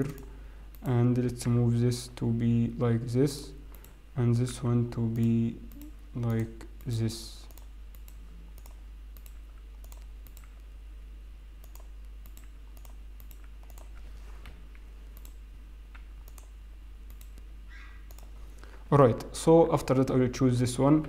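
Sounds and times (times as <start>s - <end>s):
steady low hum: 0.0s - 21.0s
computer mouse clicks: 5.2s - 10.6s, 11.6s - 14.0s, 15.2s - 16.5s, 17.1s - 17.5s, 18.1s - 18.3s
keyboard clicks: 11.6s - 14.0s.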